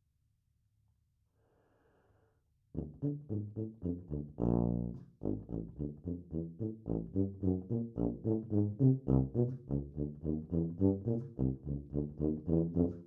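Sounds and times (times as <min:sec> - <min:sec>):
solo tuba notes: 0:02.8 - 0:13.0.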